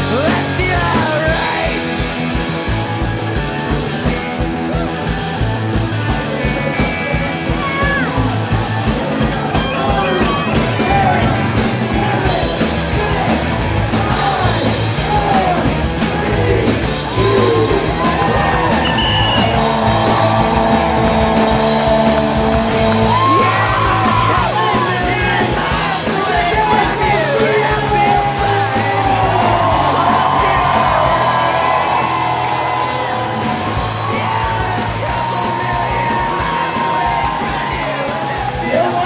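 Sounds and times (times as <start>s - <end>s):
rock song with yelled singing: 0.0s - 39.0s.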